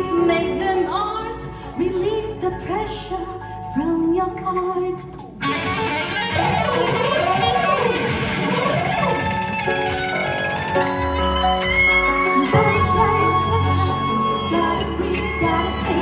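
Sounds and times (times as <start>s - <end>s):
grand piano accompaniment: 0.0s - 16.0s
electric guitar bending notes: 5.4s - 16.0s.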